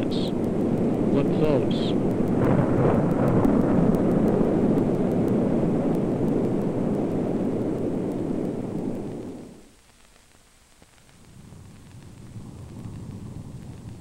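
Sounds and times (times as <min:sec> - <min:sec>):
storm wind roar: 0:00.0 - 0:09.7, 0:11.1 - 0:14.0.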